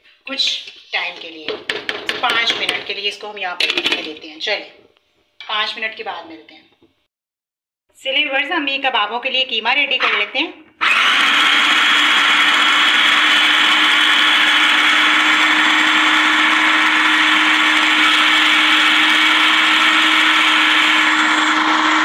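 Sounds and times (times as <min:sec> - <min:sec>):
food processor running: 0:10.8 - 0:22.0.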